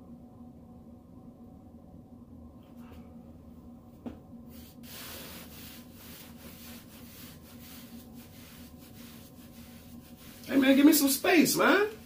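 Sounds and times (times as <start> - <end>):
brush rubbing short hair: 4.5 - 12.0.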